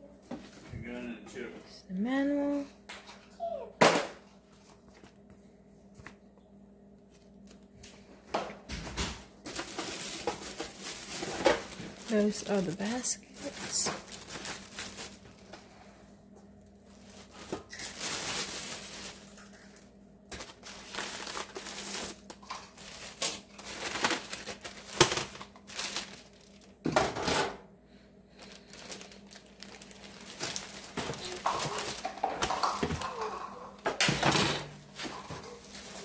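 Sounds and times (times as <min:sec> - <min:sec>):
plastic and paper crinkling: 0:09.4 - 0:15.8, 0:16.8 - 0:26.8, 0:28.3 - 0:33.7, 0:35.0 - 0:36.0.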